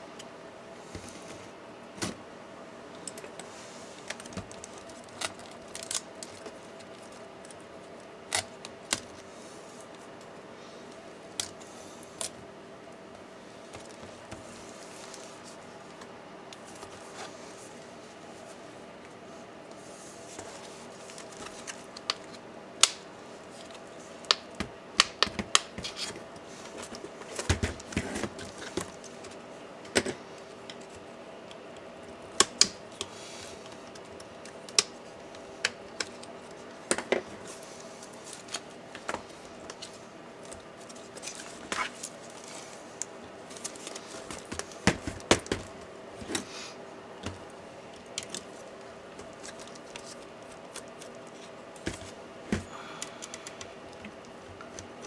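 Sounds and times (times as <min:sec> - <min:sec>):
faint steady hum: 0:00.0 - 0:55.0.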